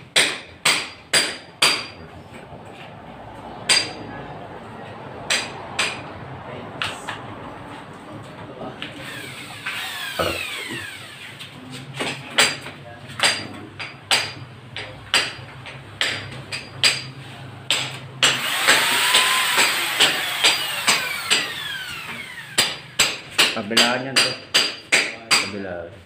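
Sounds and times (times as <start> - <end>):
power tool motor whirring: 9.0 - 11.4, 18.4 - 22.6
hammer blows: 13.2 - 25.5.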